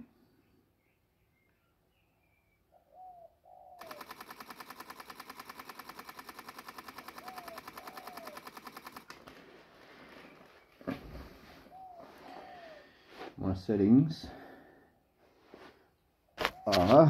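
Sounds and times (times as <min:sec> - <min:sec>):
camera shutter burst: 0:03.8 - 0:09.2.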